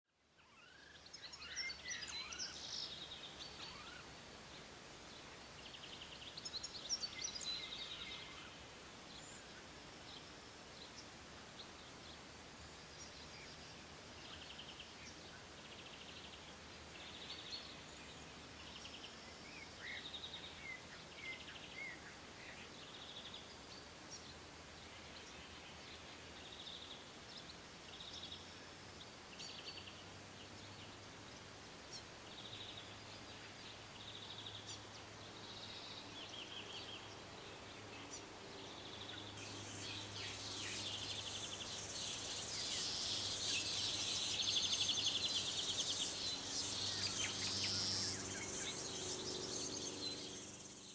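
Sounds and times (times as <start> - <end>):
forest birds calling: 0.3 - 50.9
insects chirring: 39.4 - 50.9.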